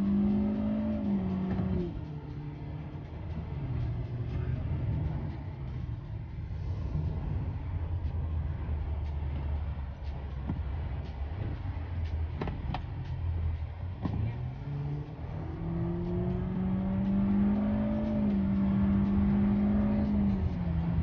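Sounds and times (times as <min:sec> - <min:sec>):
car engine accelerating: 0:00.0 - 0:21.0.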